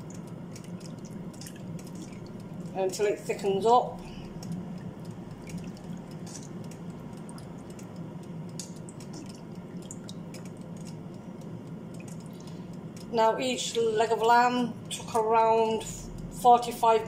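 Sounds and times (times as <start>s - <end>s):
liquid bubbling and sloshing: 0.0s - 13.2s.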